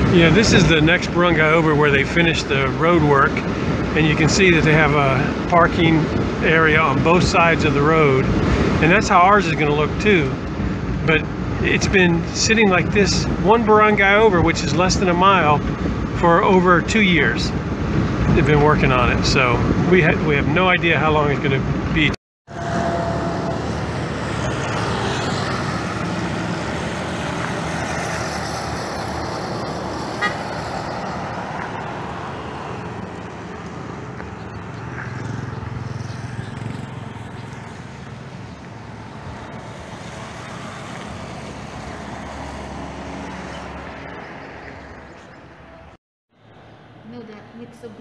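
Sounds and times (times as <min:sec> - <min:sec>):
highway traffic rushing: 0:00.0 - 0:48.0
short horn toot: 0:30.2 - 0:30.5.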